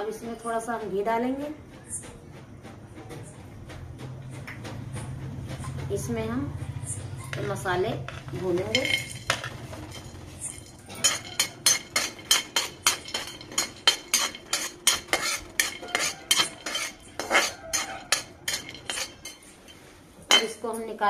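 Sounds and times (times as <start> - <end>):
metal ladle scraping a pan: 8.1 - 20.6.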